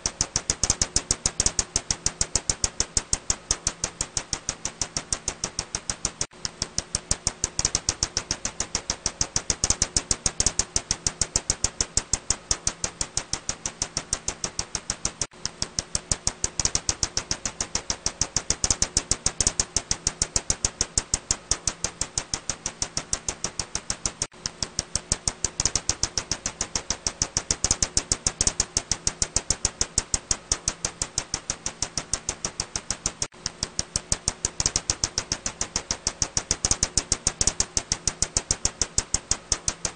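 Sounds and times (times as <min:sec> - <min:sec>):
bat echolocation clicks: 0:00.0 - 0:39.9.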